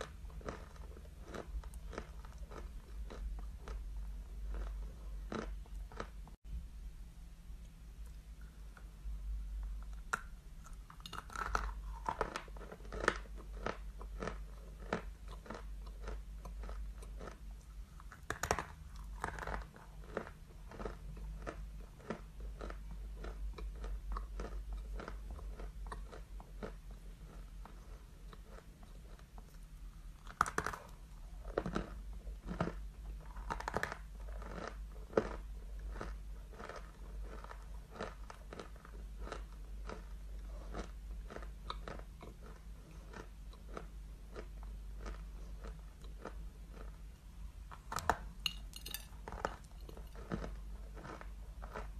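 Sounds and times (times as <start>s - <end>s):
crunching of chalk being chewed: 0.0s - 6.3s, 9.6s - 47.1s, 47.7s - 51.9s
low hum: 0.0s - 12.8s.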